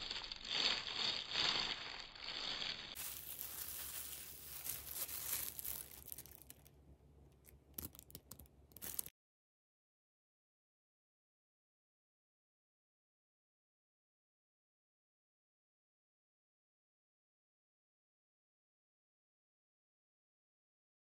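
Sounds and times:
plastic gloves crinkling: 0.0s - 9.1s.

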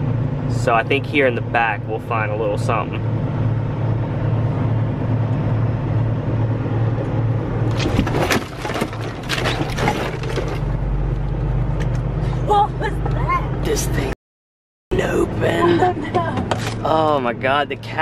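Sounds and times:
diesel engine humming: 0.0s - 14.2s, 14.9s - 18.0s
objects clattering and banging: 7.7s - 10.8s.

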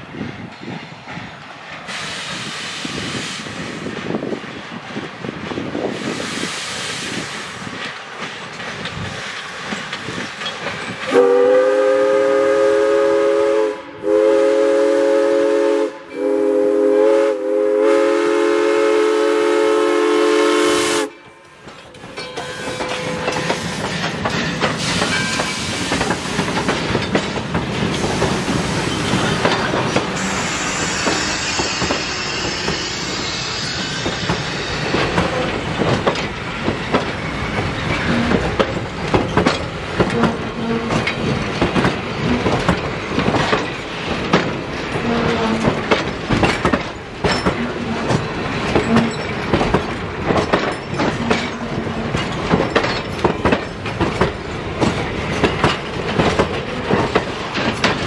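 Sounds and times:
train wheels clattering: 0.0s - 13.0s, 18.8s - 58.0s
steam whistle blasts: 11.1s - 21.2s, 30.2s - 35.5s.

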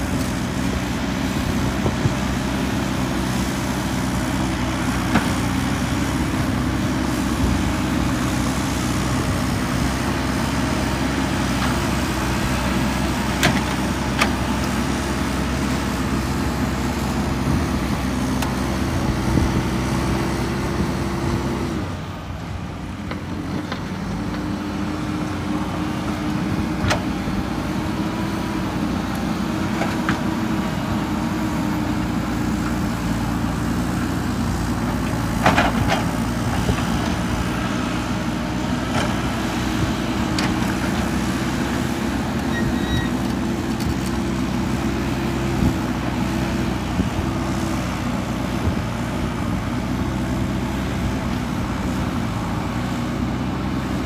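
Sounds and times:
diesel engines under load: 0.0s - 54.0s.

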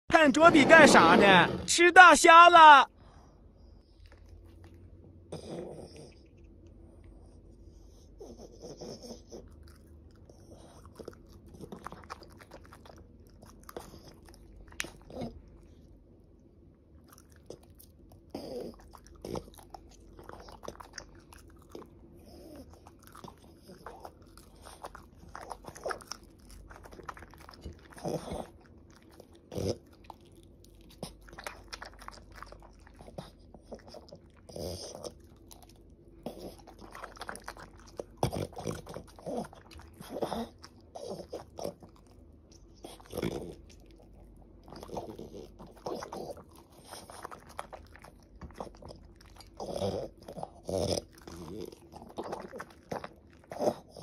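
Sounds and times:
dog crunching shrimp shells: 17.0s - 54.0s.

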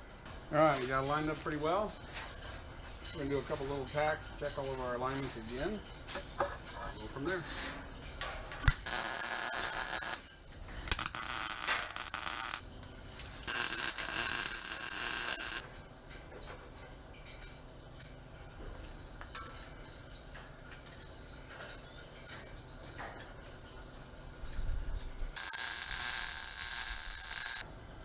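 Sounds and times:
welder crackling hiss: 8.7s - 10.2s, 10.8s - 12.6s, 13.4s - 15.6s, 25.4s - 27.6s.

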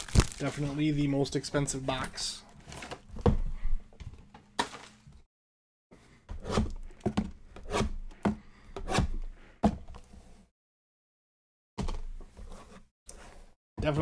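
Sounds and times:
knife slitting plastic wrap: 0.0s - 0.6s.

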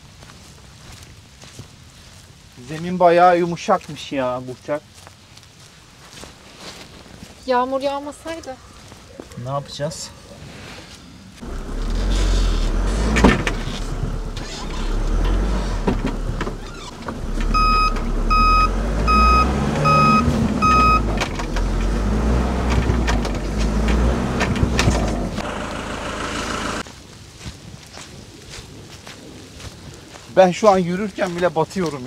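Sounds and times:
engine revving hard: 11.4s - 26.8s
reversing alarm beeps: 17.5s - 21.1s.

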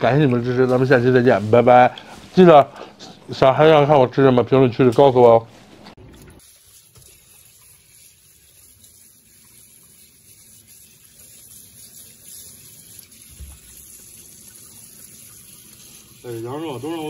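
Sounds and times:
tap water running into sink: 6.0s - 17.0s.

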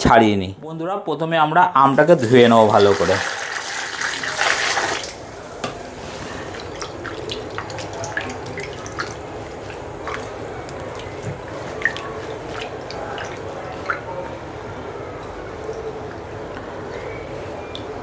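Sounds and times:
running water stream: 2.0s - 18.0s
water drips and splashes: 2.2s - 5.2s, 6.3s - 14.4s.

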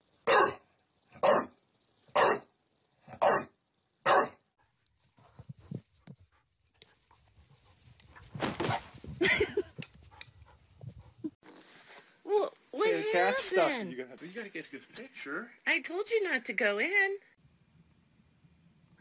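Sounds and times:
dog barking: 0.3s - 0.6s, 1.2s - 1.6s, 2.2s - 2.5s, 3.1s - 4.4s.

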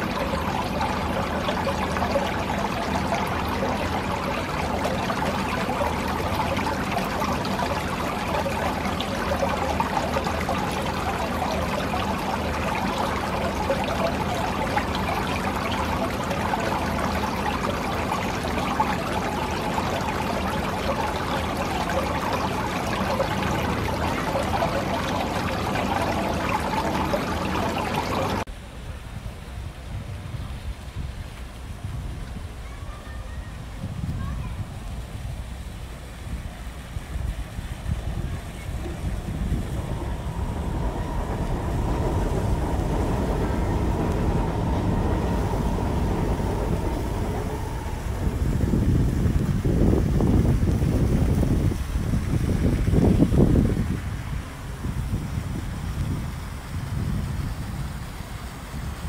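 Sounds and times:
fountain water splashing: 0.0s - 59.0s.

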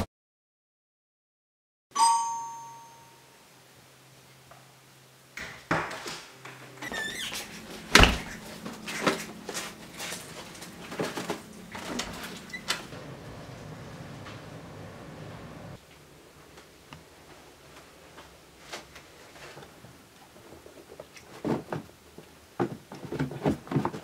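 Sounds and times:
door squeaking open: 6.8s - 9.3s, 11.7s - 13.0s.

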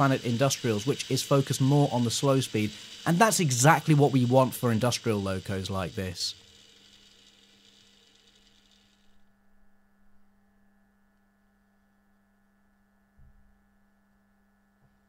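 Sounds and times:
model locomotive motor whirr: 0.0s - 9.4s
faint electrical hum: 0.0s - 15.0s.

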